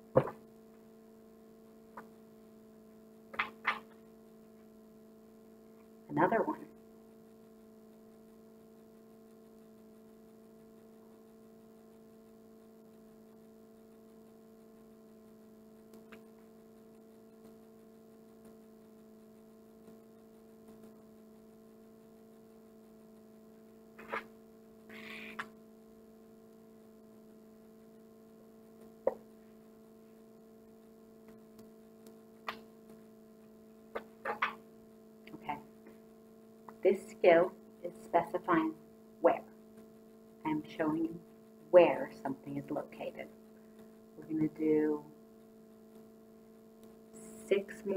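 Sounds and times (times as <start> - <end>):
low electrical hum: 0.0 - 47.9
faint clicks: 6.8 - 26.6, 45.4 - 47.4.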